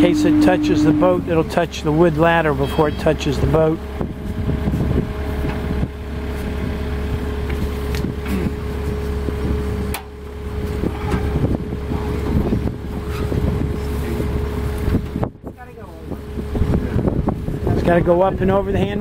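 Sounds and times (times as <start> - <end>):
diesel tractor engine idling: 0.0 - 15.1.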